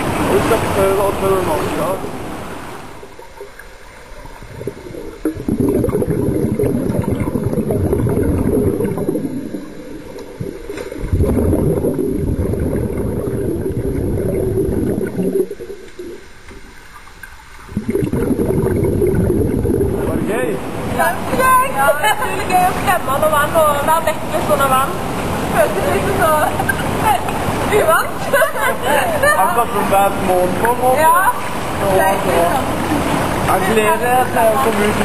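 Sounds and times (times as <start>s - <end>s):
underwater regulator bubbles gurgling: 1.5s - 20.8s.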